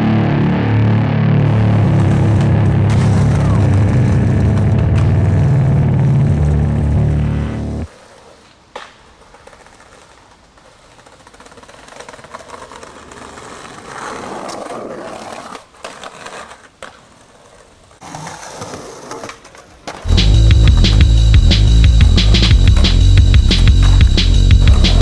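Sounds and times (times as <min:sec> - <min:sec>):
skateboard wheels rolling on paving: 0:01.4 - 0:25.0
skateboard clacks: 0:07.9 - 0:21.1, 0:22.3 - 0:25.0.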